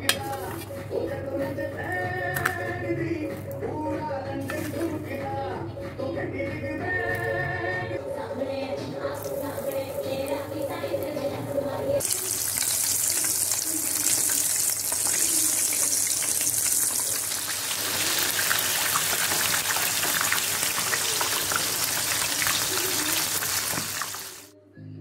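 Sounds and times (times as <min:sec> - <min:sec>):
food deep-frying in hot oil: 0:12.0 - 0:24.5.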